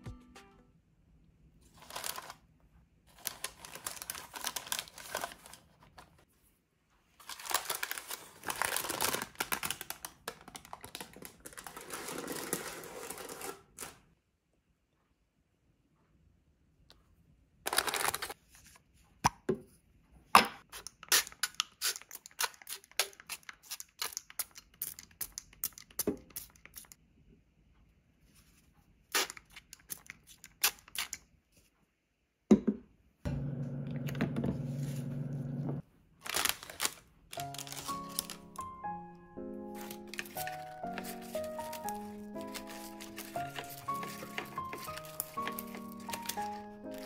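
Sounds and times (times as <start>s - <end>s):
plucked melody music: 0.0s - 0.8s, 37.4s - 47.0s
parchment crinkling: 1.7s - 2.5s, 3.1s - 6.3s, 7.0s - 14.0s, 36.2s - 38.9s, 39.5s - 47.0s
air fryer humming: 33.3s - 35.8s.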